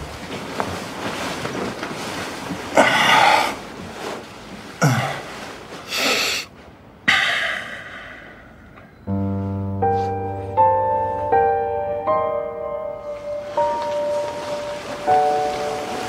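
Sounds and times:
duvet rustling: 0.0 - 7.0, 9.2 - 16.0
man sighing: 2.8 - 3.6, 4.8 - 6.5, 7.1 - 8.9.

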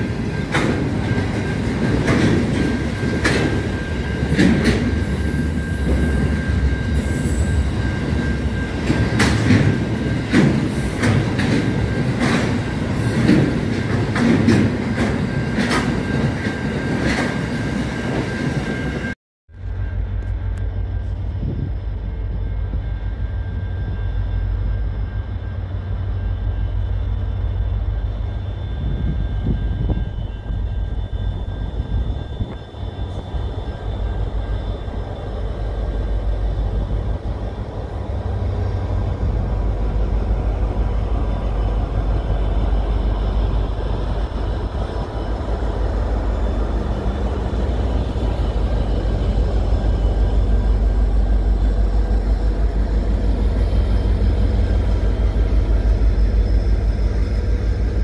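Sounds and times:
diesel locomotive engines droning: 0.0 - 58.0
train rumbling past: 0.0 - 58.0.

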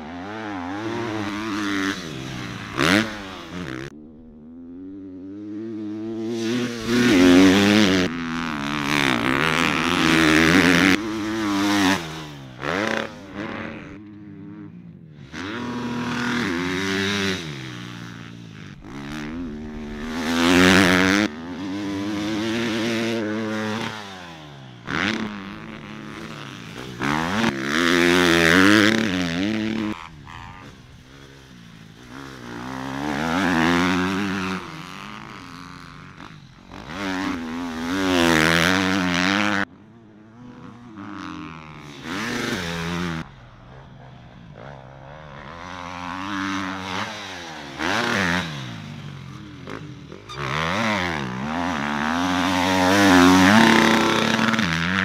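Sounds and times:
dirt bike engines revving: 0.0 - 55.0.

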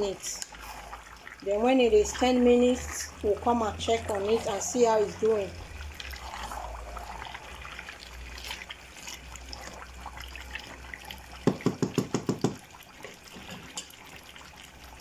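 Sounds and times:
spoon stirring wet stew: 2.0 - 14.4
spoon knocking on metal pot: 11.4 - 12.6.

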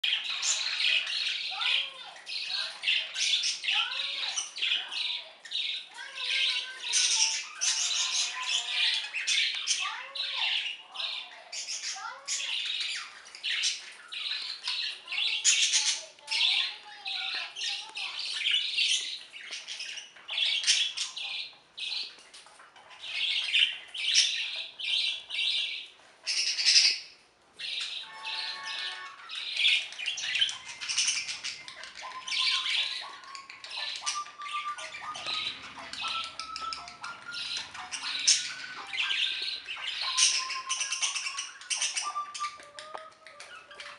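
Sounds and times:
budgerigar harsh calls: 27.7 - 42.2
budgerigar whistled notes: 34.1 - 42.6.

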